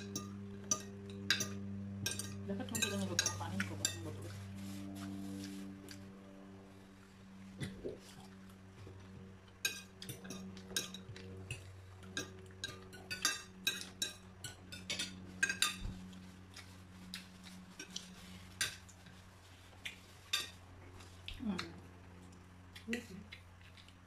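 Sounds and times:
low steady hum: 0.0s - 24.0s
cutlery clinking on plates: 9.6s - 16.0s.

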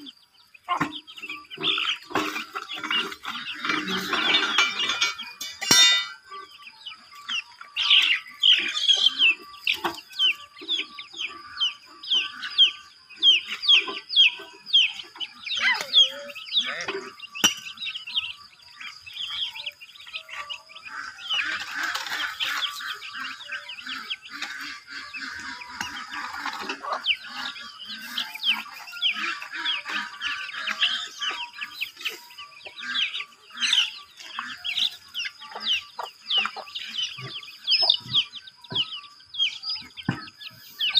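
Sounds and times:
chickens clucking and chirping: 0.0s - 40.9s.

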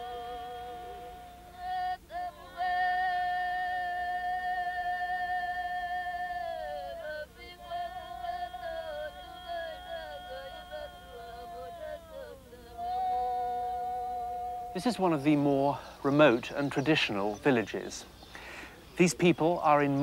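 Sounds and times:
person singing long notes: 0.0s - 16.4s.

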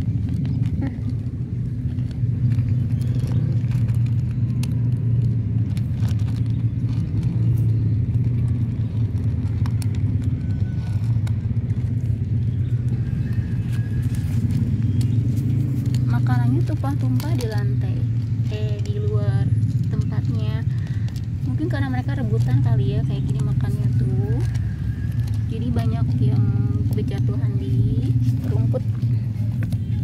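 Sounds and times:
steady low rumble: 0.0s - 30.0s.

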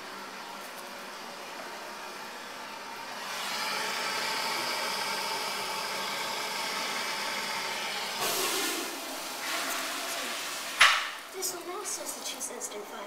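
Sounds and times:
water hissing into toilet tank: 8.1s - 11.3s.

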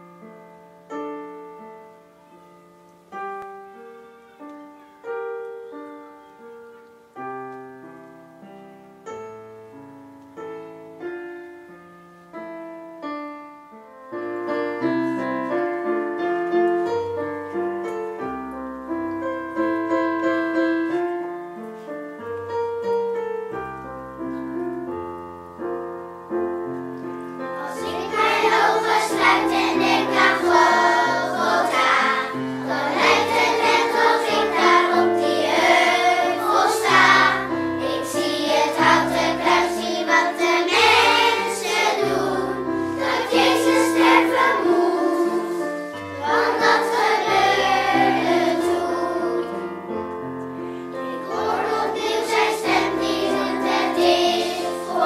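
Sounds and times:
piano chords: 0.0s - 55.0s
children's choir singing: 27.4s - 50.1s, 50.9s - 55.0s.

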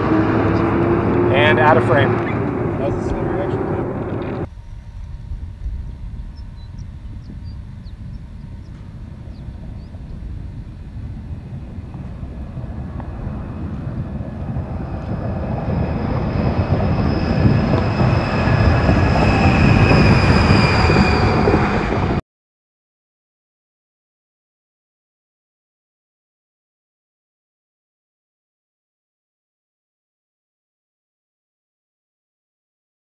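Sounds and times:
steady high whine: 0.0s - 22.2s
truck rumble passing by: 0.0s - 22.2s.

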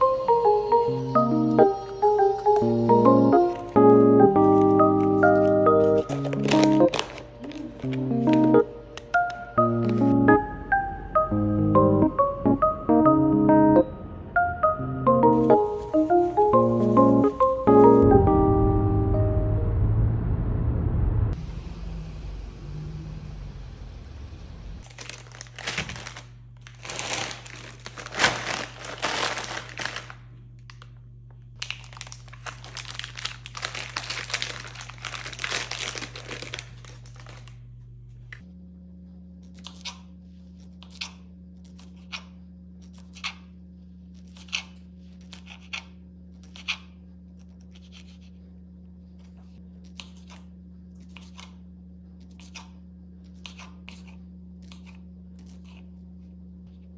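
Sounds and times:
low hum: 0.0s - 56.9s
plastic packaging crinkling and tearing: 4.4s - 8.7s, 24.8s - 30.9s, 31.6s - 37.6s.

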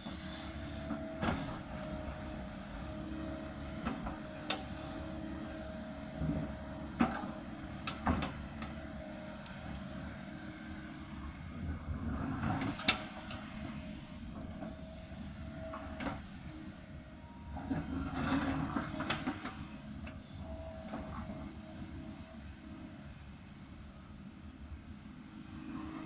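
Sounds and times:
excavator diesel engine whining: 0.0s - 24.6s.

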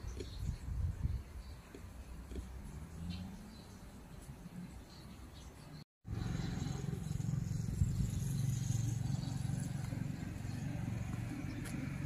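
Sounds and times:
engine running with low hum: 6.1s - 12.0s.

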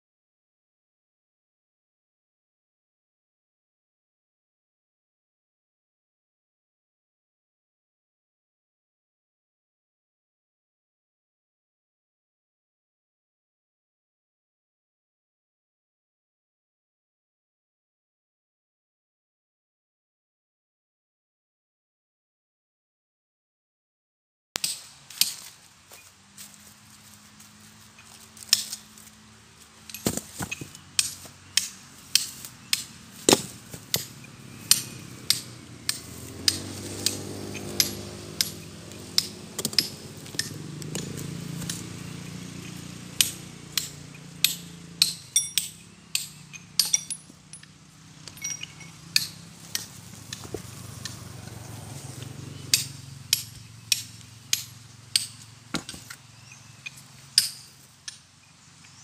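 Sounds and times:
hammer striking stone: 29.9s - 37.2s, 39.2s - 40.5s, 52.8s - 56.1s.

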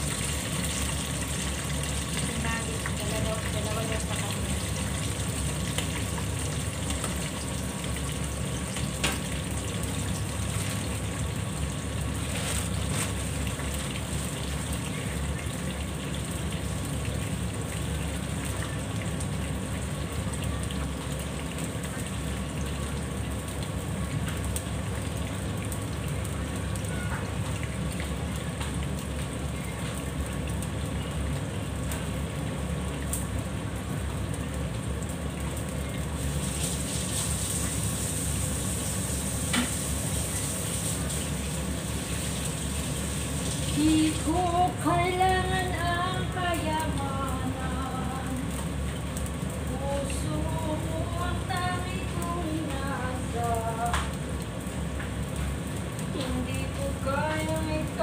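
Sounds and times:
food sizzling in oil: 0.0s - 58.0s
low steady hum: 0.0s - 58.0s.

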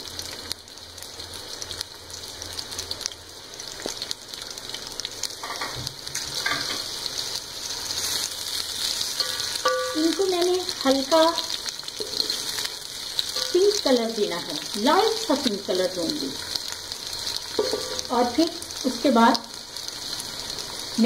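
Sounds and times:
onions sizzling in hot oil: 0.0s - 21.0s.

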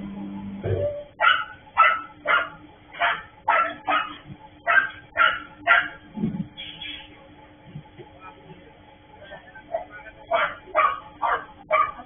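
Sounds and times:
dog barking: 1.2s - 6.0s, 10.3s - 12.0s.

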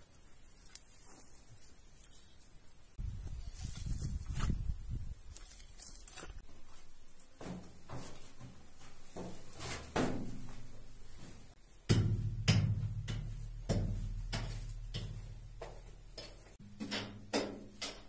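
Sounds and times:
footsteps: 5.3s - 11.6s, 12.8s - 18.0s
hammer striking cave rock wall: 11.9s - 15.2s.

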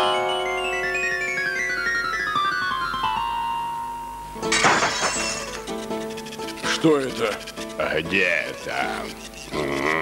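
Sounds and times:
falling high notes over held chord: 0.0s - 4.4s.

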